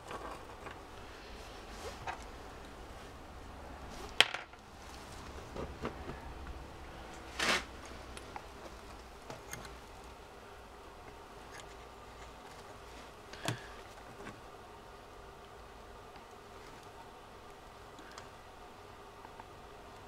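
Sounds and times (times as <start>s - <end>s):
rustling scrape: 0.0s - 3.2s, 7.1s - 8.9s
steady low hum: 0.0s - 20.0s.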